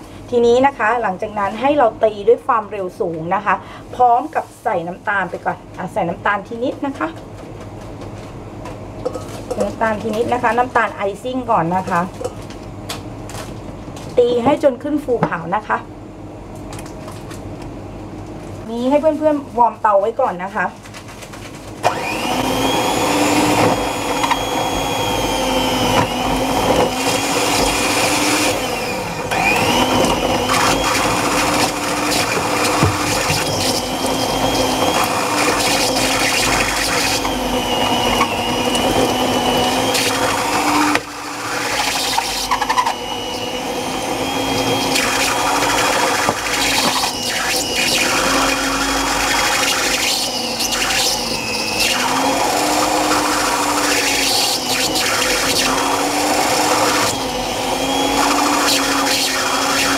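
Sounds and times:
electric stand mixer whirring: 0:21.8 - 0:59.9.

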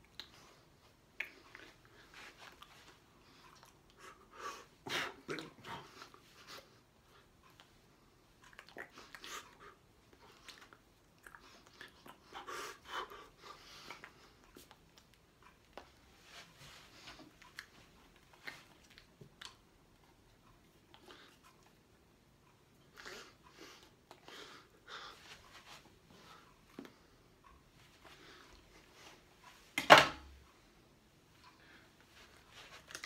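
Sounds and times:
mouth sounds: 0:04.8 - 0:06.2.

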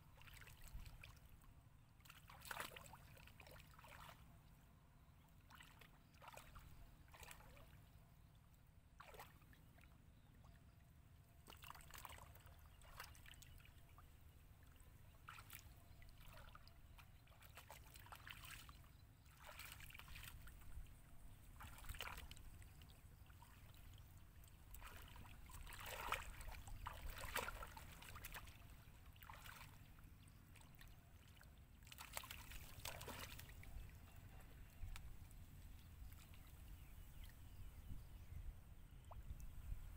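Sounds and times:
hands splashing in muddy water: 0:02.0 - 0:04.2, 0:19.4 - 0:20.5, 0:24.7 - 0:28.6, 0:31.8 - 0:33.8.

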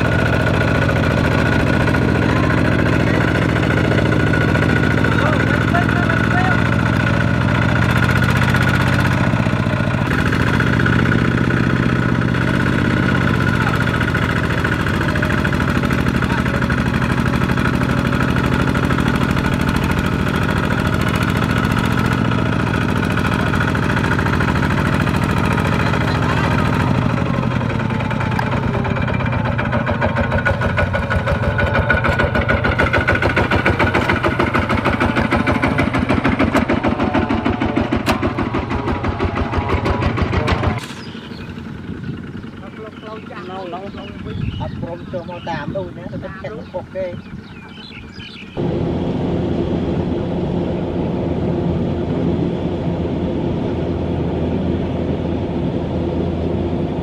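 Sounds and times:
diesel engine running under load: 0:00.0 - 0:57.0.

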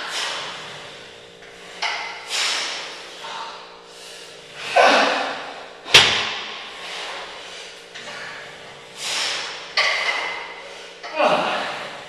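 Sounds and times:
metal weights clanking: 0:09.3 - 0:11.5.

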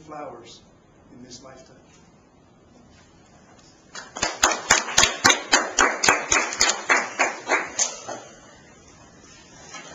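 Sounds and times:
hands clapping: 0:03.9 - 0:08.4.

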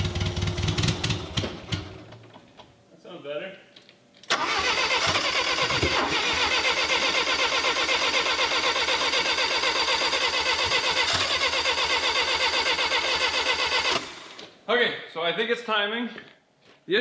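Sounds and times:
engine cranking without starting: 0:04.3 - 0:14.4.

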